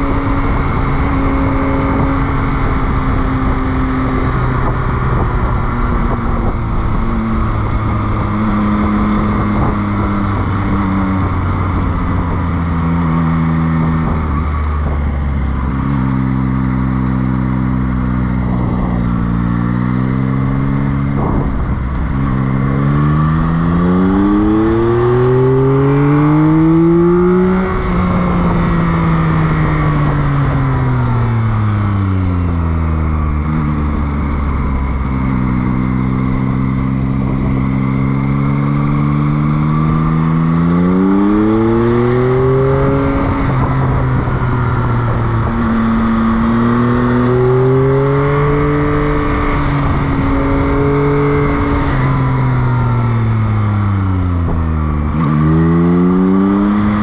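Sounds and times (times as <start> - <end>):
motorcycle engine revving: 0.0 - 57.0
road and wind noise: 0.0 - 57.0.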